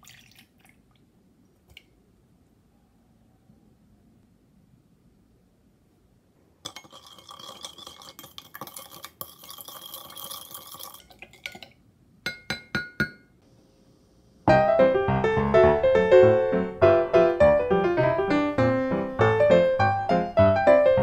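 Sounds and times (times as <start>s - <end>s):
spoon scraping glass: 6.7s - 11.2s
spoon clinking on glass: 6.7s - 11.7s, 12.3s - 13.3s
piano music: 14.5s - 21.0s.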